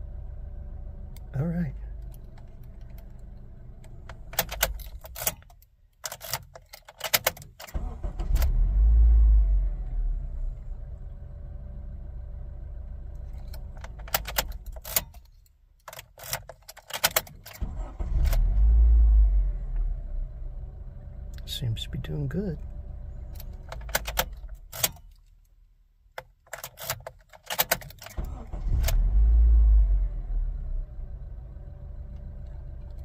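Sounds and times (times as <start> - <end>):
car engine cranking and idling: 0.0 - 33.0
ignition clicks: 1.1 - 9.2, 13.1 - 18.7, 21.3 - 29.8, 32.0 - 33.0.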